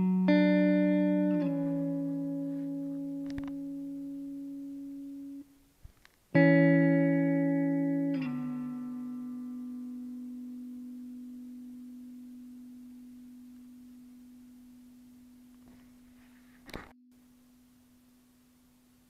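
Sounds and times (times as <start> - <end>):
guitar note ringing: 0.0 - 5.5, 6.3 - 16.3.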